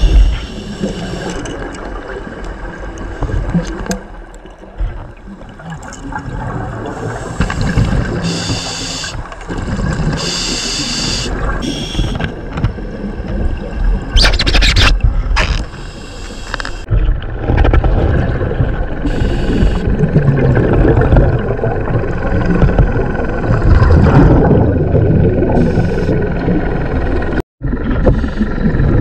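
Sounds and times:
exhaled bubbles rumbling: 0.0 - 10.5, 11.1 - 15.8, 16.6 - 29.0
regulator hissing inhalations: 10.2 - 12.0.

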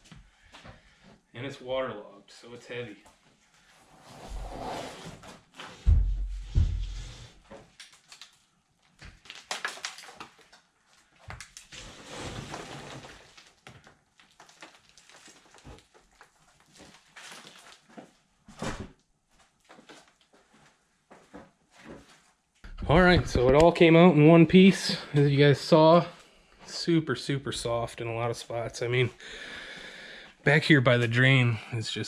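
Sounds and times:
heavy thumps: 5.8 - 7.2, 22.7 - 23.7.

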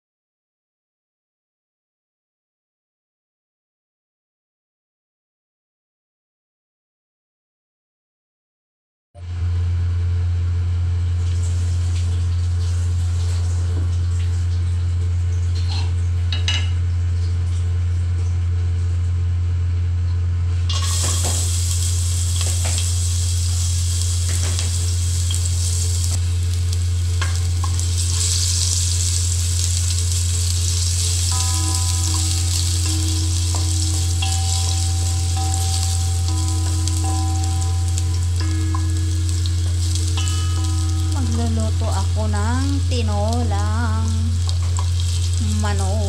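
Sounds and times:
exhaust fan hum: 9.2 - 46.0
ginger frying in hot oil: 9.4 - 46.0.

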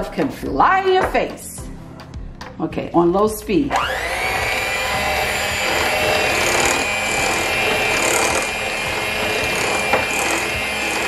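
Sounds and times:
electric hand mixer running: 3.7 - 11.0.

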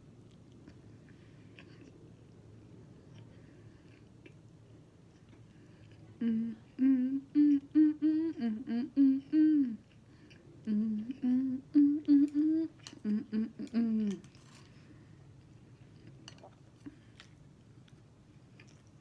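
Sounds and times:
woman humming: 6.2 - 9.9, 10.6 - 14.3.

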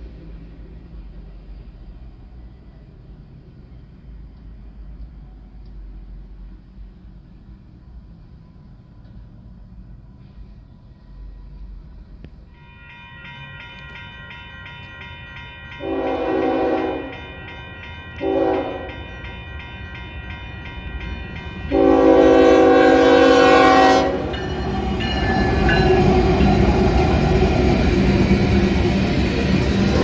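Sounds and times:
train wheels rumbling and clattering: 0.0 - 12.6, 13.2 - 30.0
crossing bell ringing: 12.5 - 30.0
locomotive air horn blasts: 15.8 - 17.3, 18.2 - 19.1, 21.7 - 24.4.

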